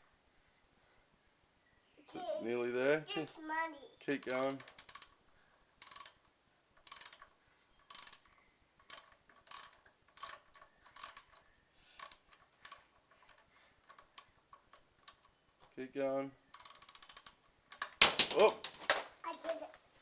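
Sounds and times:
ratchet wrench clicking: 0:04.2 - 0:05.2, 0:05.8 - 0:06.2, 0:06.8 - 0:15.3, 0:16.5 - 0:17.9.

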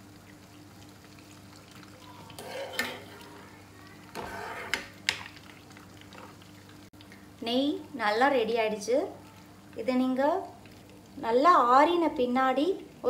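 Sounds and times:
butter frothing and sizzling: 0:00.0 - 0:06.9
steel spoon scraping a pan: 0:02.4 - 0:05.0.

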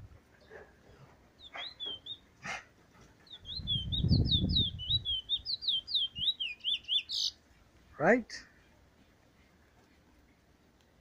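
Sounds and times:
bird singing whistled notes: 0:01.4 - 0:02.3, 0:03.2 - 0:07.4.

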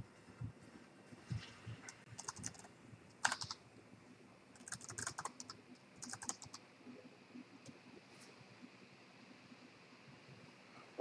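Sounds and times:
computer keyboard typing: 0:02.1 - 0:03.6, 0:04.6 - 0:06.6.

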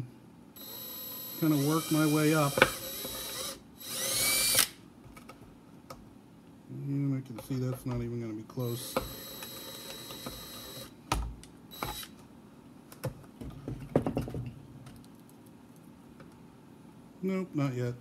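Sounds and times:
drill whining into plastic: 0:00.6 - 0:04.8, 0:08.7 - 0:10.9, 0:11.7 - 0:12.2.

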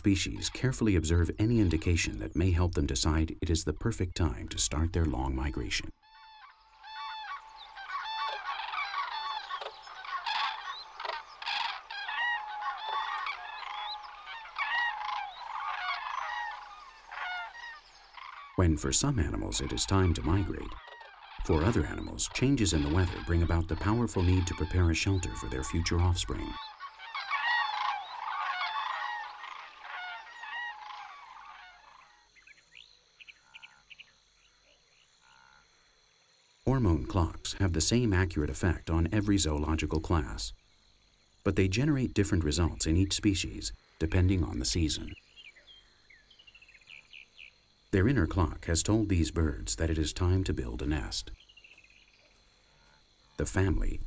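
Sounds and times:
cranes trumpeting calls: 0:05.9 - 0:35.8
bird chirps and trills: 0:06.0 - 0:34.6.

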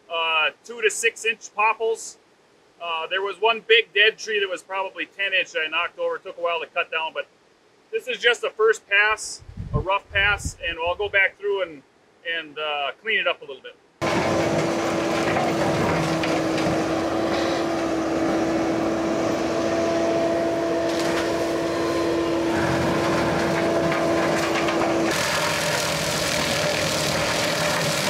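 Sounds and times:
brush mower cutting brush: 0:14.0 - 0:28.0
track loader running under load: 0:14.0 - 0:28.0.

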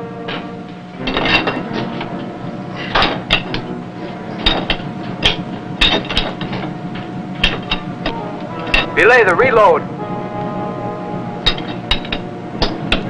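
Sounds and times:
steady machinery hum: 0:00.0 - 0:13.0
metallic clanks and knocks: 0:00.2 - 0:09.0, 0:11.4 - 0:13.0.

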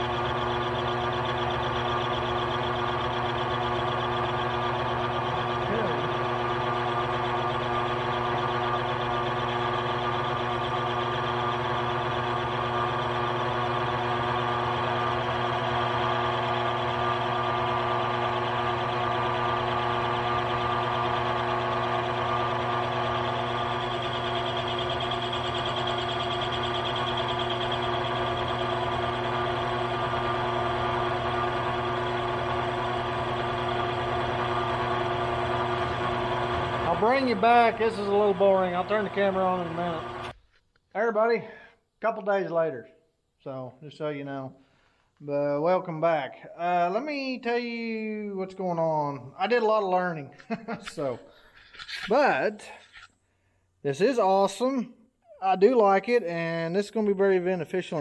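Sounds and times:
metal lathe humming: 0:00.0 - 0:40.4.

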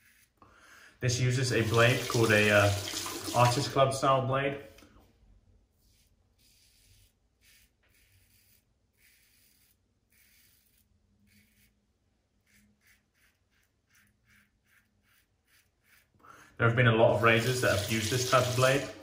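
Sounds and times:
razor cutting stubble: 0:07.6 - 0:16.2.

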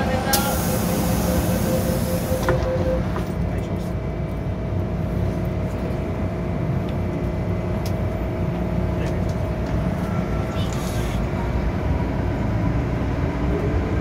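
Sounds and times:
train electrical hum: 0:00.0 - 0:13.8
train doors shutting with a knock: 0:00.2 - 0:03.2
door-closing warning beeps: 0:00.3 - 0:03.4
faint high whine: 0:00.4 - 0:03.7.

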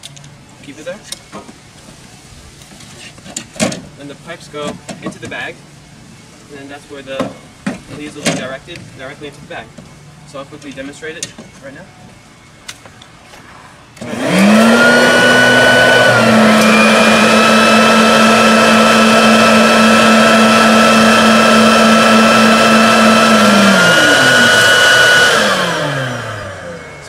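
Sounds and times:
leaf blower motor whine: 0:14.0 - 0:27.0.

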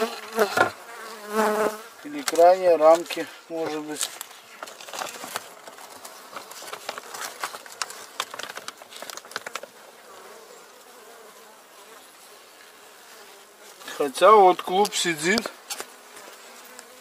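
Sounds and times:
honeybees buzzing: 0:00.0 - 0:17.0
plastic film crinkling: 0:02.3 - 0:09.7
wooden parts clicking: 0:06.6 - 0:09.7.

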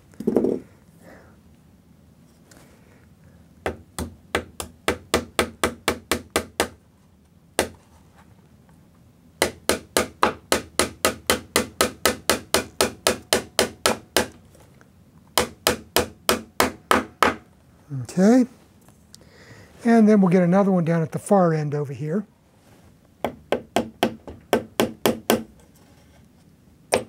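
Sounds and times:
small hammer tapping a nail: 0:03.6 - 0:06.8, 0:09.4 - 0:14.4, 0:15.4 - 0:17.4, 0:23.2 - 0:25.5.

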